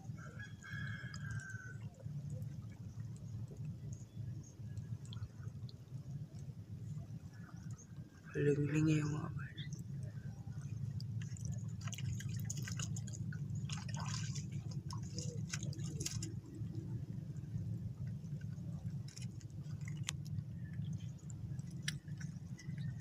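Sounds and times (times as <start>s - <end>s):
low rumble: 0.0s - 23.0s
water dripping: 0.6s - 8.1s, 8.7s - 23.0s
footsteps splashing in water: 11.3s - 16.8s.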